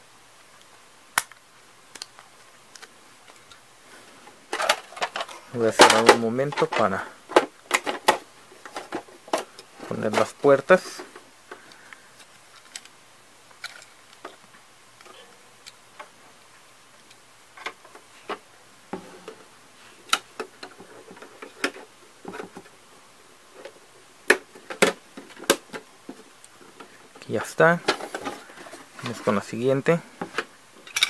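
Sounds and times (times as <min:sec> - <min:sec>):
plastic parts clicking into place: 0:00.6 - 0:03.6, 0:11.5 - 0:14.4.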